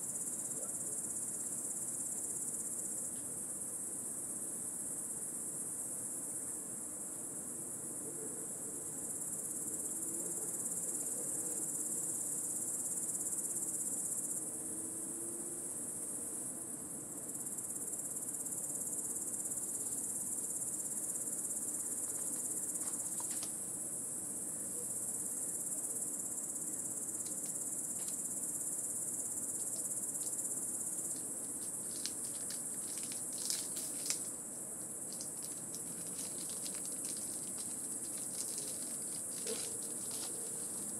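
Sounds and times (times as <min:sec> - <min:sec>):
cicadas buzzing: 0:17.5 - 0:40.9.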